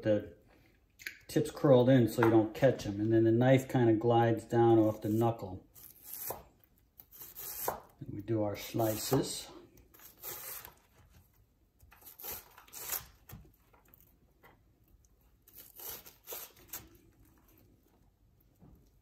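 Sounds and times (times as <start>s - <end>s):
knife chopping on cutting board: 6.0s - 6.5s, 7.1s - 7.9s, 8.8s - 9.4s.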